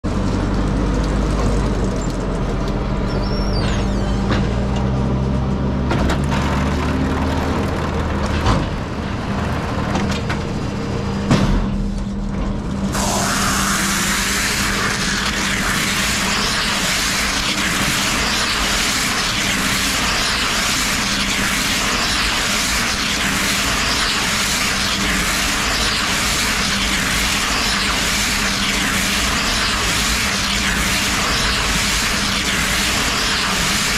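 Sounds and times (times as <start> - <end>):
baler machine hum: 0.1 - 33.9
loud steady hiss: 12.9 - 33.9.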